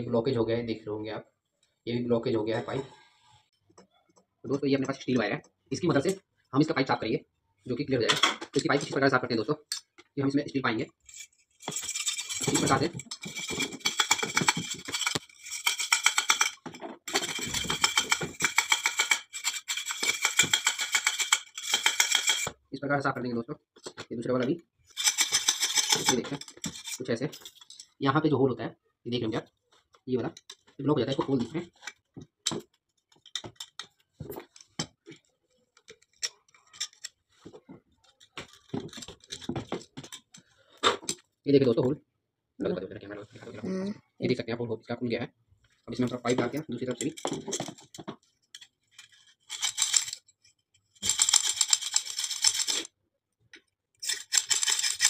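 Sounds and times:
steel wire scraping inside tubes: 0:10.9 - 0:22.5, 0:24.9 - 0:28.0, 0:48.4 - 0:52.9, 0:54.0 - 0:55.0.

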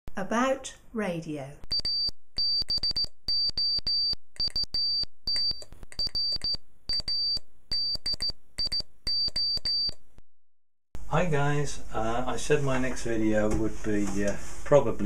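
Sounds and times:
morse code beeps: 0:01.7 - 0:10.0.

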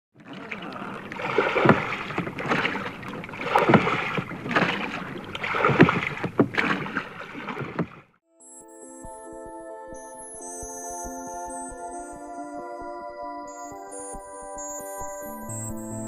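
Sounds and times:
water washing: 0:00.1 - 0:08.2
oars splashing through water: 0:00.2 - 0:08.2.

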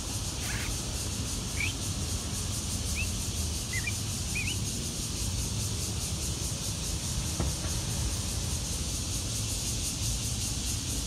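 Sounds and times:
myna chirps: 0:00.4 - 0:00.8, 0:03.7 - 0:04.6.

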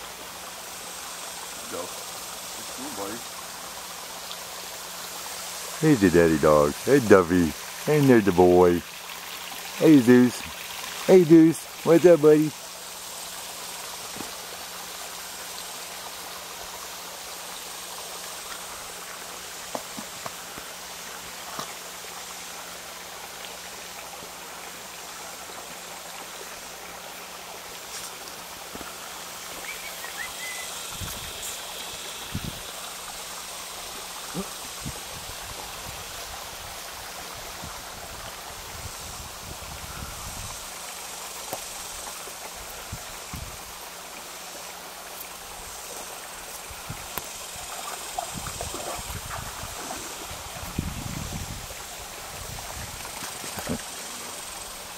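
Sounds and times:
stream water running: 0:00.0 - 0:54.9.

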